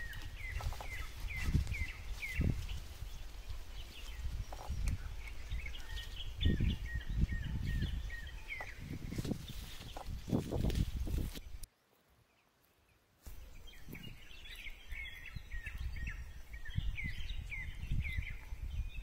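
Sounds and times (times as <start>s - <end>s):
rustling dry leaves: 0.0s - 11.7s
small bird chirping: 0.0s - 11.7s, 13.3s - 19.0s.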